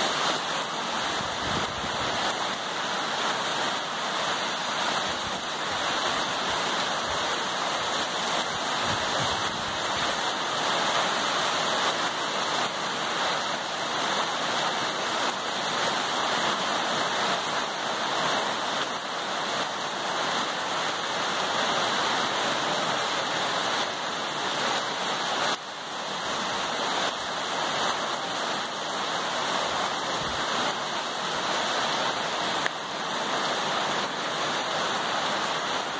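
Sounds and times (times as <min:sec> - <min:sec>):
rain on foliage: 0:00.0 - 0:35.9.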